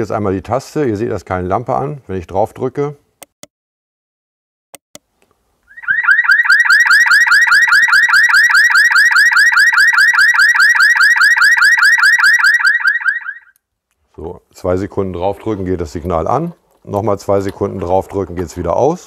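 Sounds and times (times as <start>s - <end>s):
electronic alarm rising chirps: 5.7s - 13.6s.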